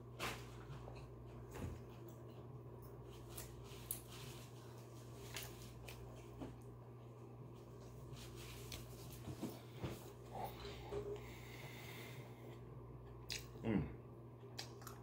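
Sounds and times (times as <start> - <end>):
steady low hum: 0.0 - 15.0
person chewing close up: 14.4 - 15.0.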